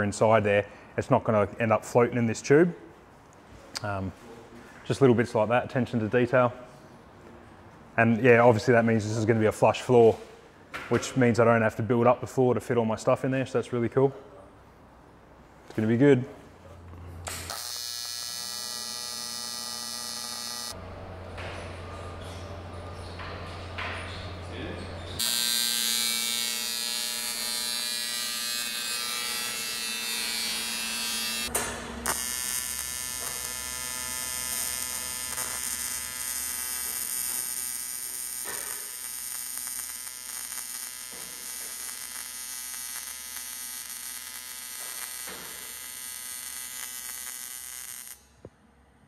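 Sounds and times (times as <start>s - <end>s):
welding arc buzzing: 17.2s - 21.8s, 25.1s - 48.4s.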